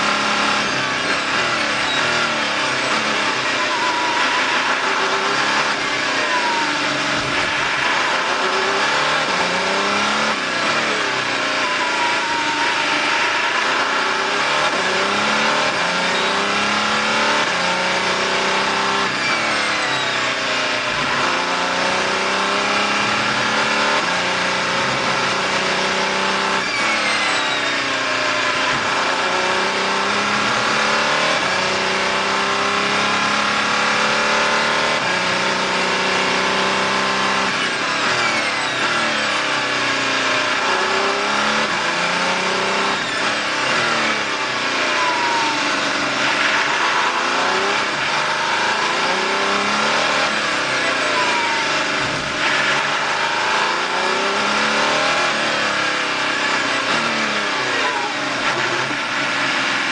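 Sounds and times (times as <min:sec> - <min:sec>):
high whine: 0:00.0 - 0:33.1
race car engine accelerating: 0:00.0 - 0:59.9.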